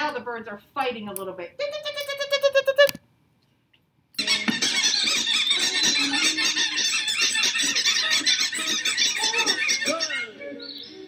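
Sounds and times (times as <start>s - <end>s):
cartoon birds squeaking and chirping: 4.2s - 11.0s.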